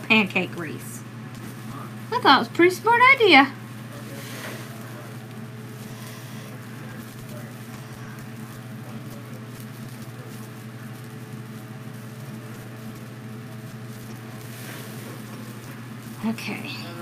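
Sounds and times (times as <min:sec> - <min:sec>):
steady low hum: 0:00.0 - 0:17.0
foil mesh rustling and crinkling: 0:03.9 - 0:17.0.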